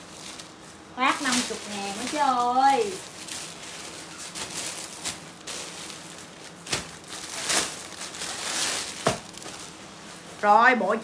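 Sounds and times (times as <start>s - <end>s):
plastic bags and clothing rustling: 0.0s - 11.0s.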